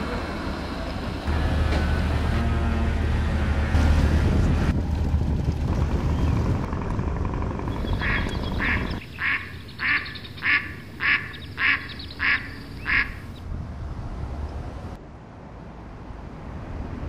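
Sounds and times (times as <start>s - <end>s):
duck quacking: 7.8s - 13.4s.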